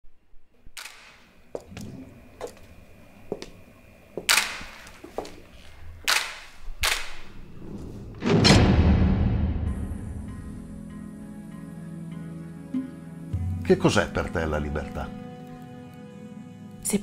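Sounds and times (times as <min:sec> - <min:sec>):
sharp cracks or blows: 0:00.8 - 0:01.3, 0:04.3 - 0:04.8, 0:06.1 - 0:07.4
loud low boom rumbling: 0:08.0 - 0:10.8.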